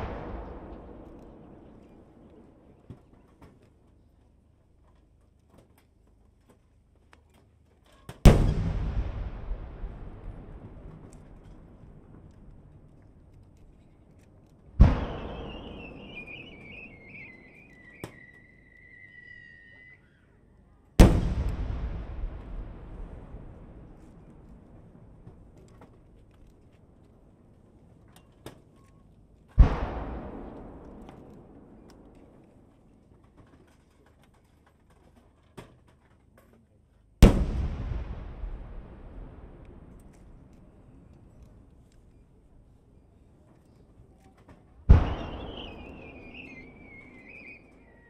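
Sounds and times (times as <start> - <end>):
sharp crack: 0.0 - 3.8, 8.2 - 18.4, 21.0 - 26.8, 29.5 - 33.4, 37.2 - 42.2, 44.8 - 48.0
firework boom: 8.3 - 12.2, 14.8 - 18.2, 21.0 - 25.5, 37.2 - 40.4, 44.9 - 47.7.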